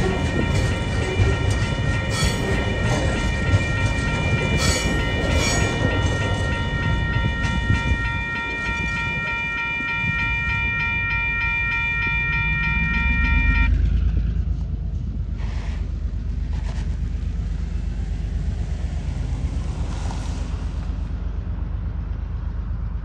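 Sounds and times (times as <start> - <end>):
level crossing warning bell: 0.0 - 13.8
train wheels clattering: 0.0 - 14.2
low train rumble: 0.0 - 23.0.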